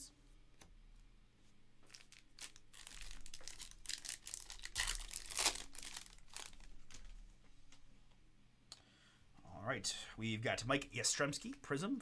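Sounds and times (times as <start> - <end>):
foil wrapper tearing and crinkling: 1.9 - 7.0.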